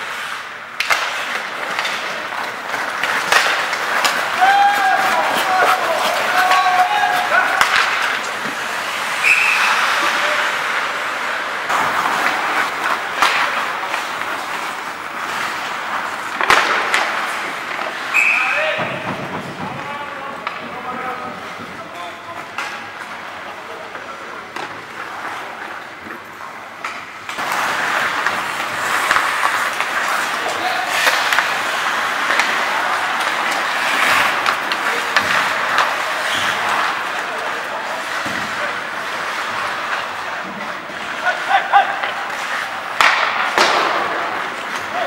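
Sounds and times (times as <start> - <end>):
skates hissing on ice: 0.0 - 19.7, 22.8 - 45.0
hockey sticks and puck clacking: 0.0 - 45.0
sharp crack: 0.7 - 20.7, 42.0 - 45.0.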